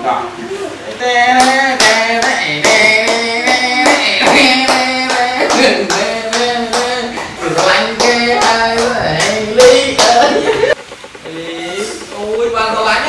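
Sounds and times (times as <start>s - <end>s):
hands clapping: 1.4s - 11.3s
tune of held notes: 8.2s - 13.0s.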